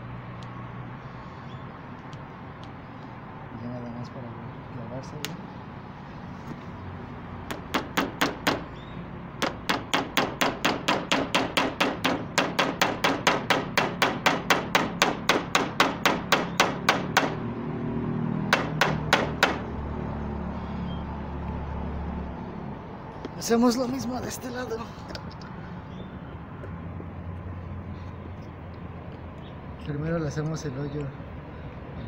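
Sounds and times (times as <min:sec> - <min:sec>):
hammer striking nail: 0:07.5 - 0:08.7, 0:09.4 - 0:17.4, 0:18.5 - 0:19.7.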